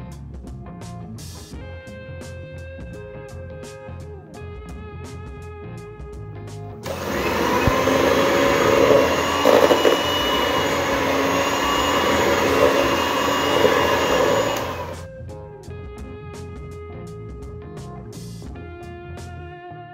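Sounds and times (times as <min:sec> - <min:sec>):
electric hand mixer running: 0:06.8 - 0:15.0.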